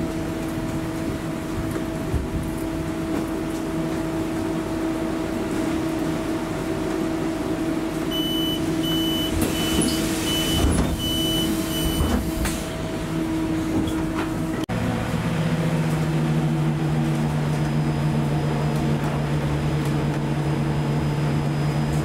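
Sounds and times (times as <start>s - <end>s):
trolleybus humming: 0.0s - 22.0s
short high warning beeps: 8.1s - 12.1s.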